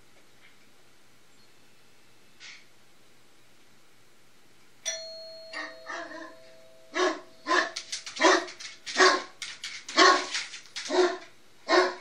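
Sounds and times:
ding-dong doorbell chime: 4.8 - 7.5
dog barking: 5.6 - 12.0.

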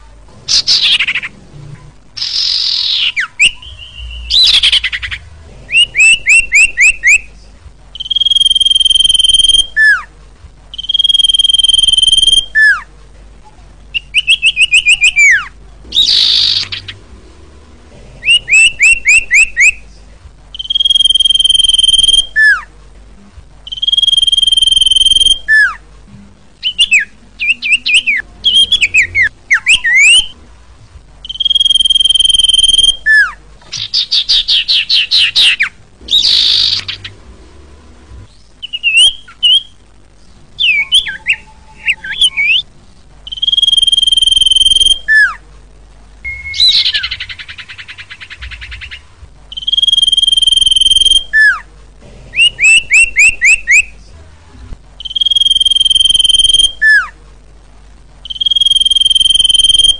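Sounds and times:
bird harsh rasping call: 0.5 - 1.4, 2.2 - 7.3, 14.0 - 17.2, 26.6 - 30.4, 31.2 - 37.3
bird whistled notes: 2.2 - 7.3, 8.0 - 10.1, 10.7 - 12.9, 13.9 - 17.0, 18.2 - 19.8, 20.5 - 22.7, 23.7 - 25.8, 26.6 - 30.4, 31.2 - 37.1, 38.6 - 39.8, 40.6 - 42.7, 43.3 - 45.4, 46.3 - 51.6, 52.4 - 53.9, 55.0 - 57.1, 58.3 - 59.9.

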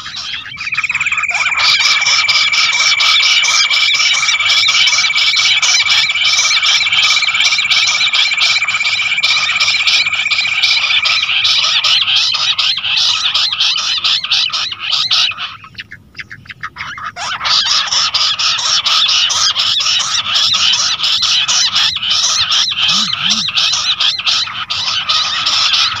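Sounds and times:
thin steady high tone: 0.0 - 13.4
quail chirping chorus: 0.0 - 26.0.

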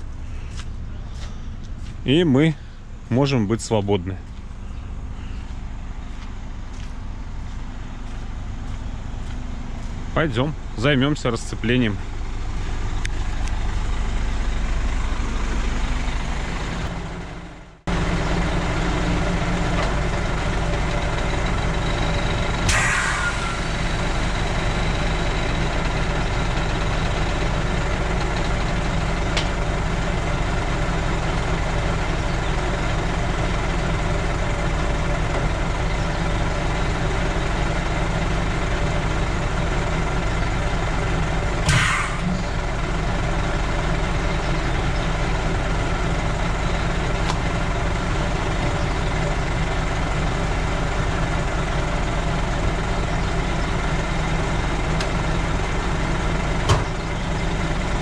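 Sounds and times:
diesel truck engine idling: 0.0 - 58.0
air hiss: 22.7 - 23.7.

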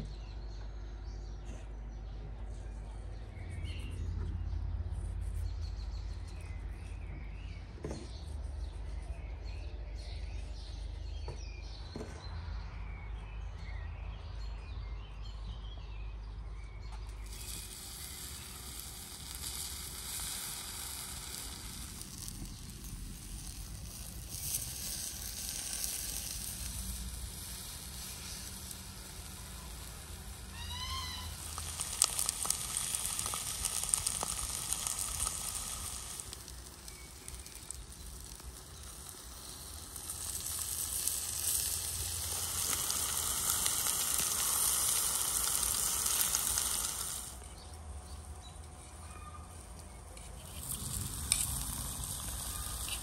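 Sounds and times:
birds chirping: 0.0 - 53.0
vegetable slices sizzling on stone: 17.2 - 48.6, 49.6 - 53.0.

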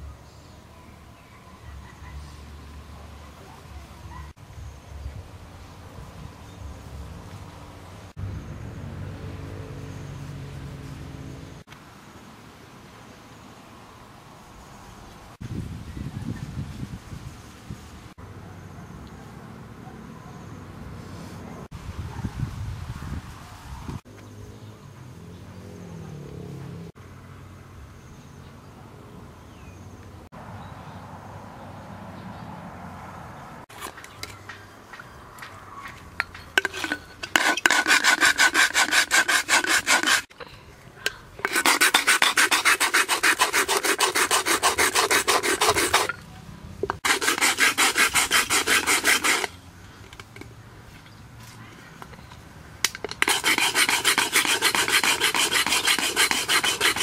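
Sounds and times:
can scraping on sharpening stone: 36.5 - 40.3, 41.1 - 46.2, 46.8 - 50.4, 52.9 - 57.0.

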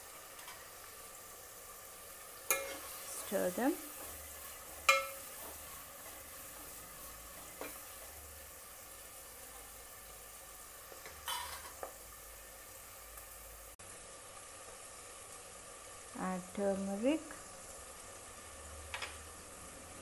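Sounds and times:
onions sizzling in oil: 0.0 - 20.0
metal ladle clinking on pot: 4.9 - 5.2.

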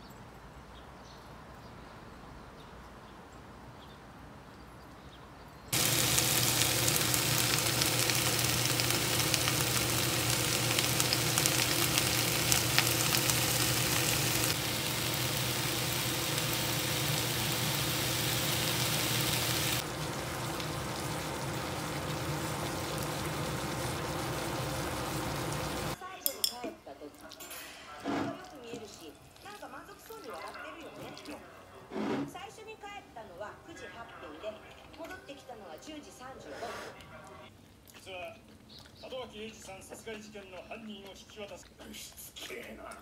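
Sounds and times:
vegetables sizzling in a frying pan: 5.7 - 26.0.

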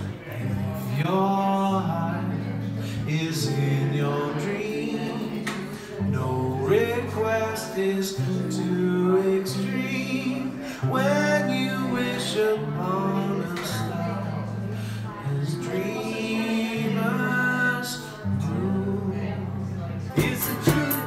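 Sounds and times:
acoustic guitar chords: 0.0 - 21.0
man singing: 0.0 - 21.0.

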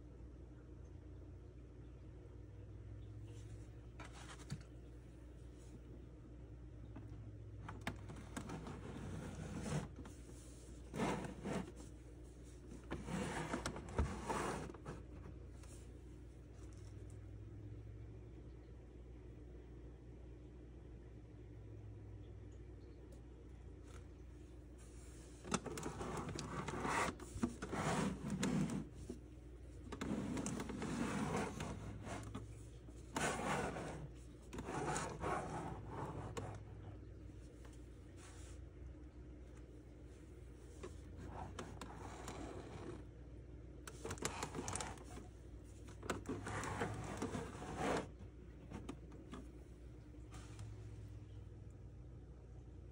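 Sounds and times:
plastic case scraping on table: 7.7 - 10.1, 10.9 - 11.8, 12.8 - 15.1, 25.5 - 29.0, 29.9 - 32.5, 33.1 - 36.6, 46.0 - 48.9
glove rubbing on plastic: 7.8 - 15.8, 24.8 - 29.2, 29.9 - 36.7, 44.0 - 49.4.

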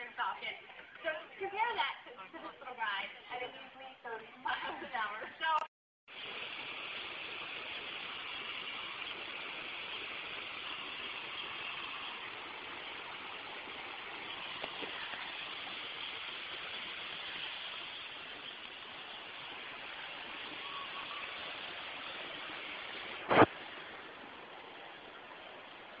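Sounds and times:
stream running over stones: 6.1 - 26.0.

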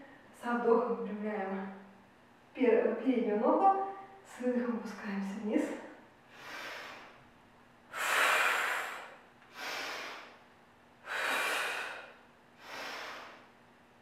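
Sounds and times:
woman breathing deeply: 6.3 - 7.2, 7.9 - 10.4, 11.0 - 13.6.

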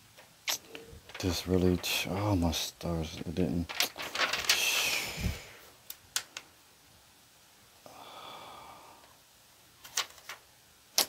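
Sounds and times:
man sighing: 7.8 - 9.1.

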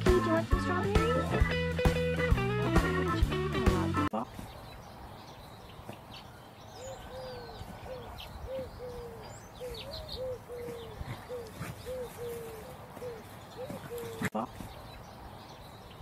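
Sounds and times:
small birds chirping: 4.1 - 16.0
dove cooing: 6.8 - 14.4.

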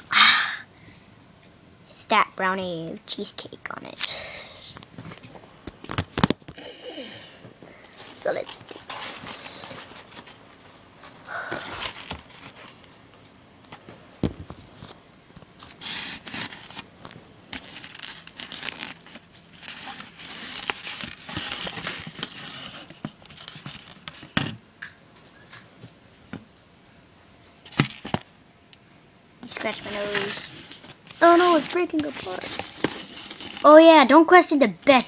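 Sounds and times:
paper plate rustling and scraping: 7.9 - 12.9, 15.6 - 24.5, 29.4 - 33.8.

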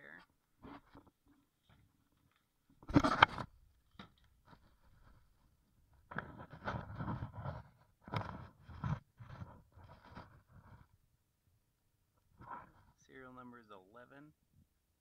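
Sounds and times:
scraping and rubbing: 2.8 - 3.5, 6.1 - 11.0.

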